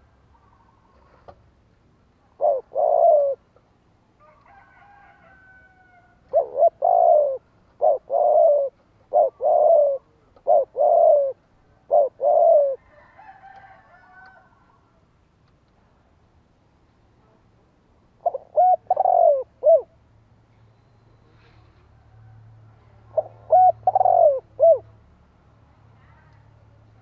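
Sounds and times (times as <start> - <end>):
dove cooing: 2.3 - 3.5, 6.1 - 12.9, 18.2 - 20.0, 23.1 - 24.9.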